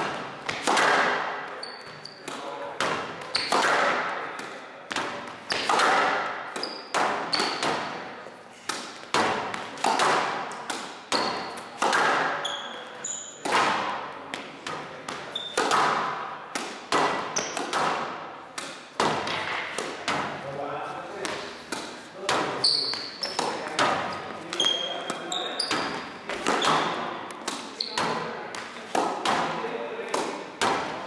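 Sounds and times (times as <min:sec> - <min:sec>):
shoes squeaking on court floor: 0:00.0 - 0:05.9, 0:06.5 - 0:10.0, 0:11.0 - 0:13.6, 0:14.4 - 0:16.1, 0:17.1 - 0:17.7, 0:20.8 - 0:28.9
squash racket striking ball: 0:00.0 - 0:20.4, 0:21.2 - 0:31.0.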